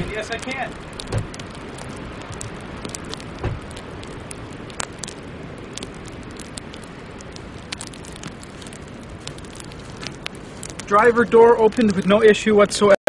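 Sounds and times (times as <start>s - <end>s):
wind hiss: 0.0s - 13.0s
dull thump: 1.1s - 1.4s, 3.4s - 3.7s
sleet pattering on a car: 7.4s - 12.4s.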